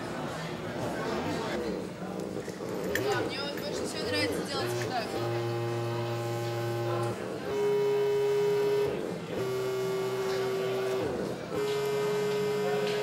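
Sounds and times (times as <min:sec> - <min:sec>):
buzzy synthesized tones: 0:02.7 - 0:13.0.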